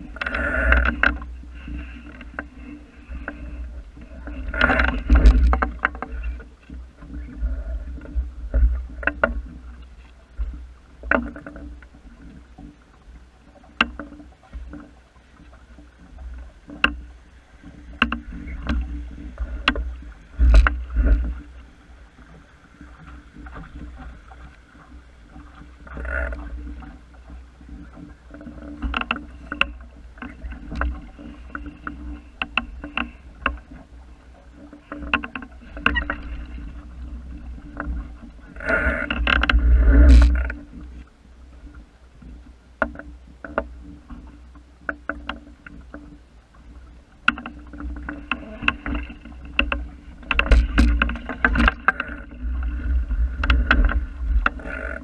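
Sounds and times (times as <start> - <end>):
boat rigging knocks and clicks: 0.0 - 55.0
water along hull: 0.0 - 55.0.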